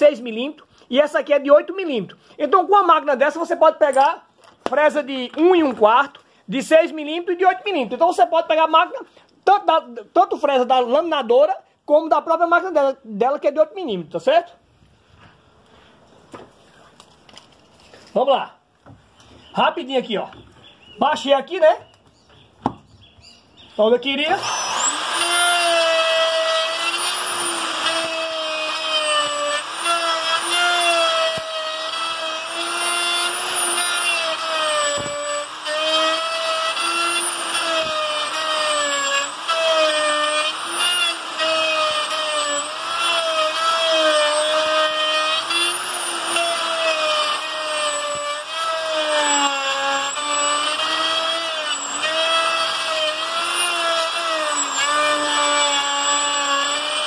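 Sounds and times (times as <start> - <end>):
router motor whine cutting wood: 24.3 - 57.0.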